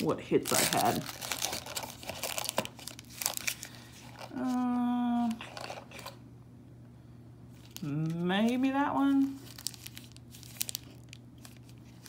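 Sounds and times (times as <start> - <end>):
foil packs crinkling: 0.0 - 6.1, 7.6 - 12.0
woman humming: 4.3 - 5.5.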